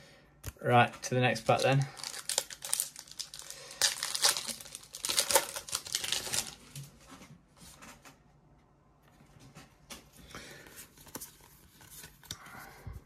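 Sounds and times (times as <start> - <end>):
foil wrapper crinkling and tearing: 1.3 - 6.8.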